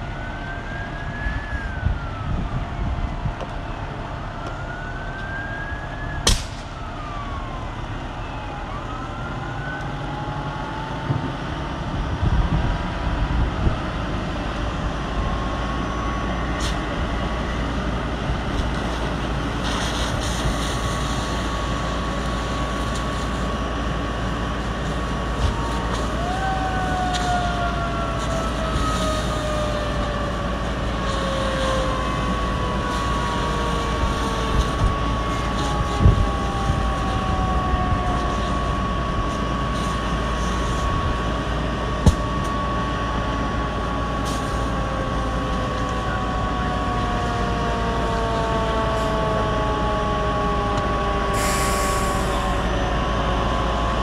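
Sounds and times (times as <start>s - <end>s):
fire hose water spray roaring: 0.0s - 54.0s
sharp pops from fire: 6.2s - 6.8s, 19.6s - 23.6s, 27.0s - 27.5s, 42.0s - 42.5s
fire hissing to steam: 16.5s - 42.5s, 44.2s - 44.8s, 51.2s - 52.7s.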